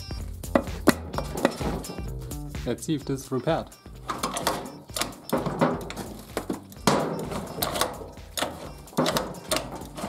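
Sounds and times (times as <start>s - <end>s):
scooter kick-start lever clunking: 4.0s - 10.0s.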